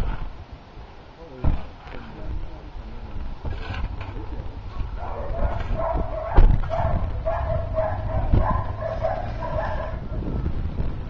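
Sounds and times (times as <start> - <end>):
steady low rumble: 0.0 - 11.0
loud bump: 5.4 - 9.8.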